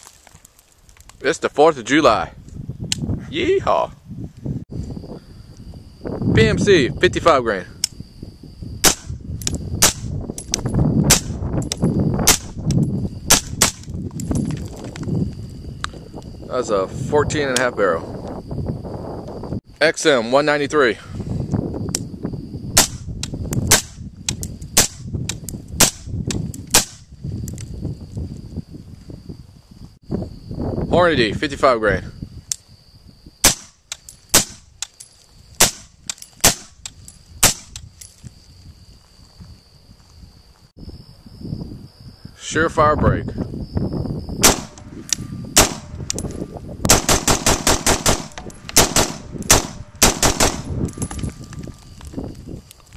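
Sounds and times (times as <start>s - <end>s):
suppressed rifle shots: 44.4s - 44.8s, 45.6s - 46.0s, 46.9s - 50.7s.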